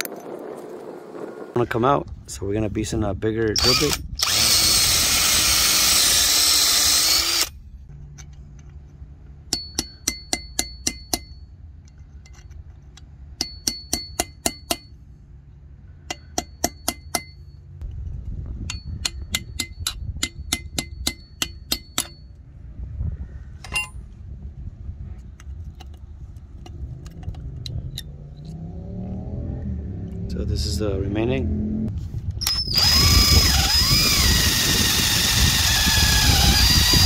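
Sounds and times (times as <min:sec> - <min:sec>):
electric drill boring into steel: 0:03.6 - 0:07.6, 0:32.4 - 0:37.0
hammer tapping steel tool: 0:09.5 - 0:11.4, 0:13.4 - 0:14.9, 0:16.1 - 0:17.5, 0:18.7 - 0:22.3.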